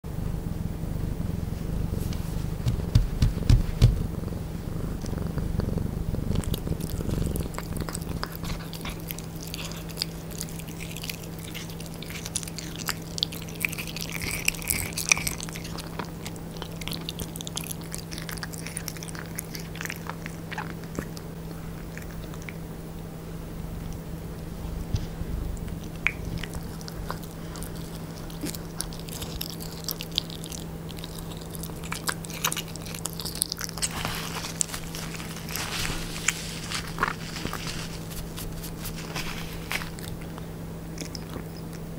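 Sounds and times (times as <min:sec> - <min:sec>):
low rumble: 0:00.1 - 0:08.8, 0:21.3 - 0:28.4
cat chewing meat: 0:01.6 - 0:23.0, 0:24.9 - 0:41.9
sharp thumps: 0:02.1 - 0:04.2.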